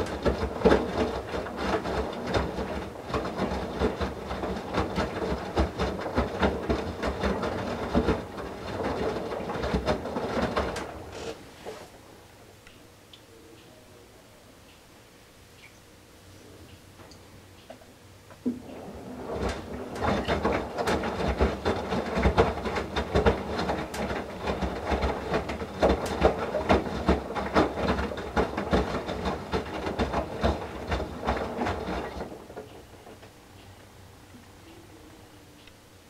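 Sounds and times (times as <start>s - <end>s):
clatters and splashes: 0.0s - 11.0s, 19.3s - 33.2s
washing machine drum tumbling: 0.0s - 11.2s, 18.4s - 33.4s.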